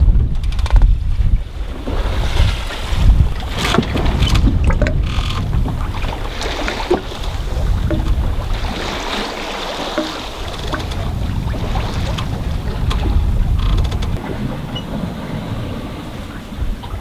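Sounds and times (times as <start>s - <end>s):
water rushing along boat hull: 0.0s - 17.0s
wind buffeting microphone: 0.0s - 17.0s
small knocks and rattles: 3.7s - 5.4s, 9.8s - 11.1s.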